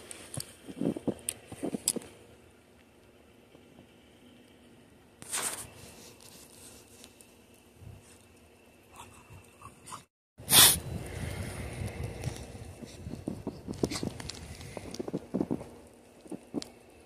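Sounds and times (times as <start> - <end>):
dogs digging in snow: 5.2 - 7.2, 12.2 - 16.6.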